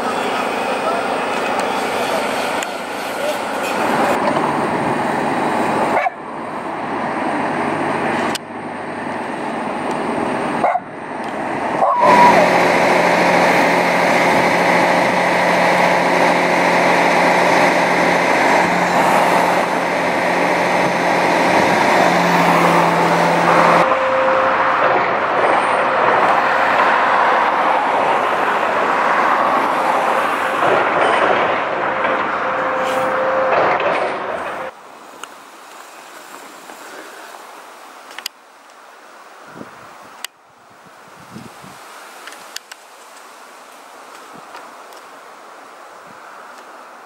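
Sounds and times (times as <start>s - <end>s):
truck engine humming: 0.0s - 36.5s
steady rushing noise: 0.0s - 38.4s.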